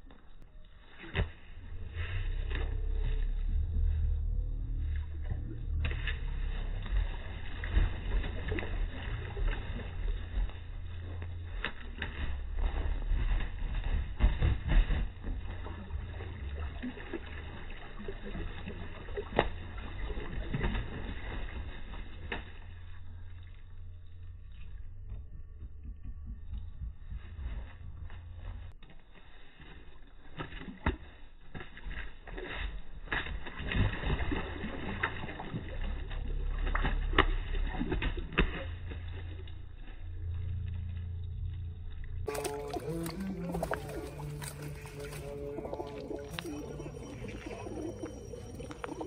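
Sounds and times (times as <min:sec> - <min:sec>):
pigeons splashing water: 0:00.0 - 0:25.2, 0:26.8 - 0:49.0
wings flapping: 0:05.8 - 0:16.4, 0:42.3 - 0:49.0.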